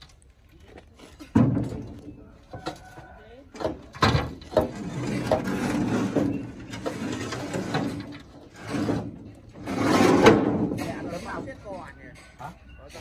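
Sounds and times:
metal panel scraping and knocking: 3.6 - 12.3.

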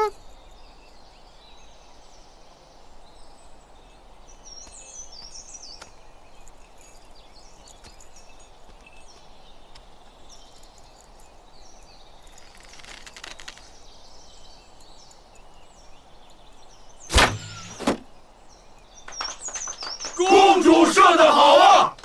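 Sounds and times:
faint bird chirps: 0.0 - 21.3
arrow striking target: 17.1 - 18.1.

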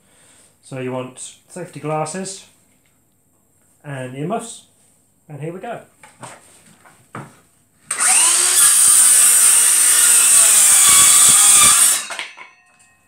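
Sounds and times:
circular saw cutting plywood: 7.9 - 12.2.

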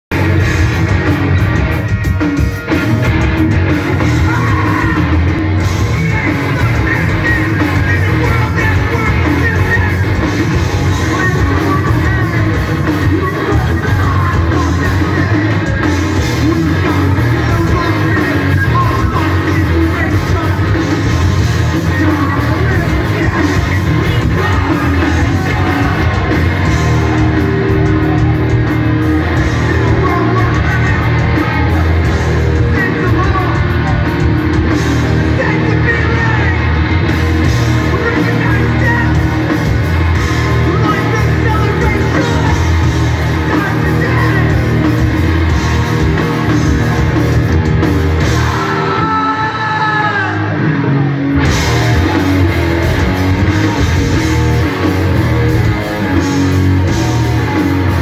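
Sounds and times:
punk band playing live: 0.1 - 58.0
person shouting vocals: 48.2 - 51.1.

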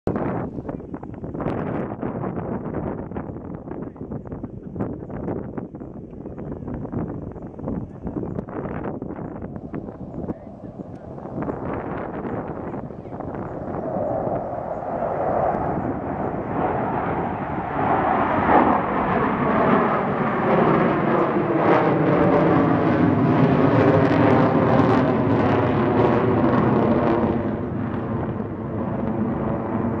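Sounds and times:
jets roaring overhead: 8.4 - 30.0.

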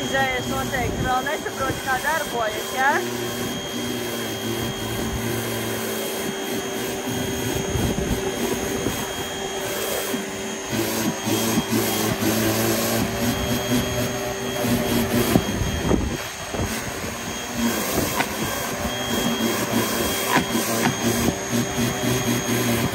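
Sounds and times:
pressure washer motor droning: 0.0 - 22.9.

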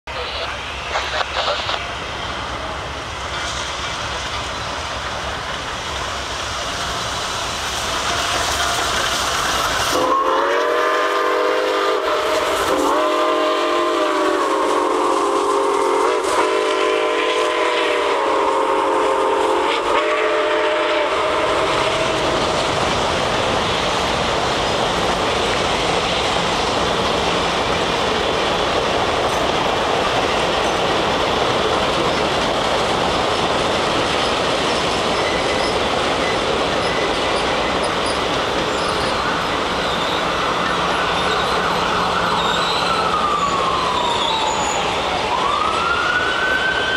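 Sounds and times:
train rumbling over rails: 0.0 - 46.9
train horn chord: 9.9 - 22.4.

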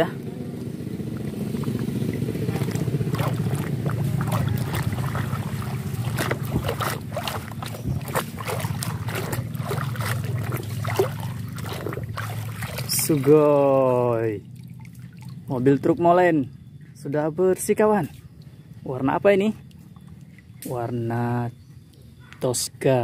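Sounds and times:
steady low hum: 0.0 - 22.2
water splashing in plastic basin: 1.0 - 16.0.

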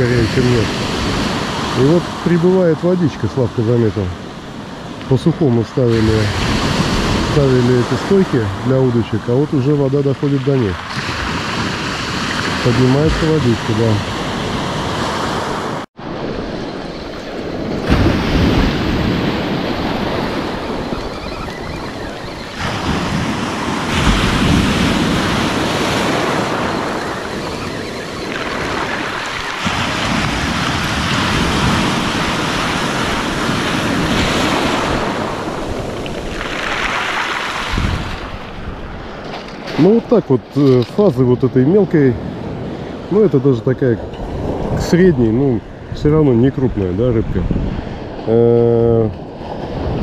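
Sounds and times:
surf breaking on a beach: 0.0 - 50.0
wind buffeting microphone: 10.6 - 36.9, 37.5 - 40.0, 44.0 - 50.0.

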